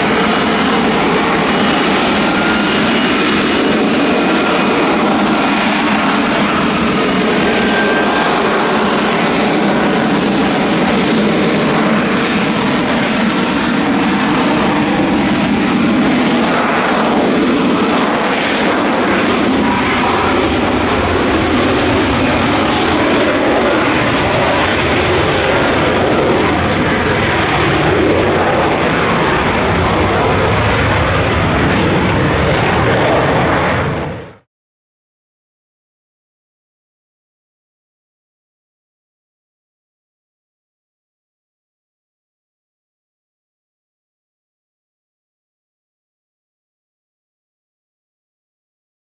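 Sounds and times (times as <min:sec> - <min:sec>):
jet engine roaring: 0:00.0 - 0:34.5.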